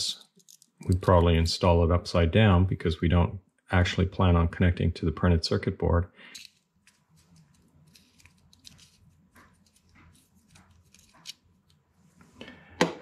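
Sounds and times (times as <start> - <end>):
metal tool scraping plastic: 6.4 - 11.8.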